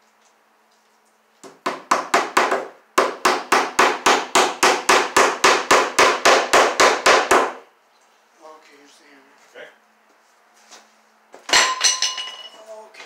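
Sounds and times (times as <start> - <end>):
hammer striking wooden beam: 1.4 - 7.6.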